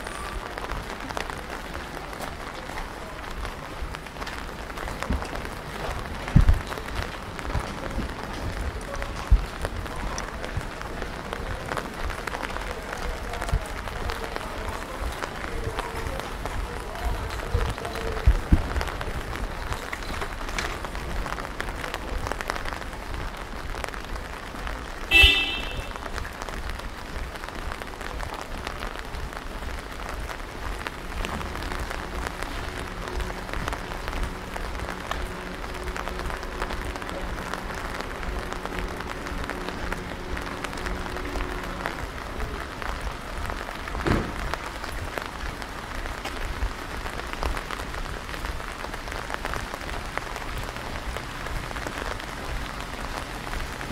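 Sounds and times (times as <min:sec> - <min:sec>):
steady rain pattering: 0:00.0 - 0:53.9.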